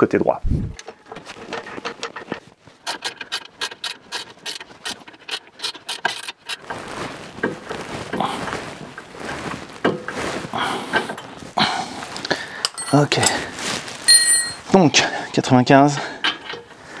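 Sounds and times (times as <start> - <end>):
rustling handling noise: 6.5 - 14.7.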